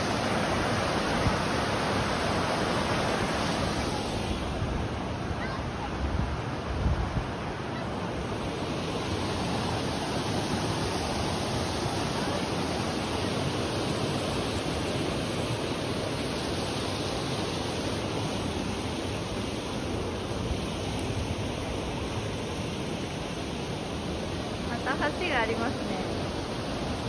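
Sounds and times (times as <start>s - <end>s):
river rushing over rocks: 0.0s - 27.0s.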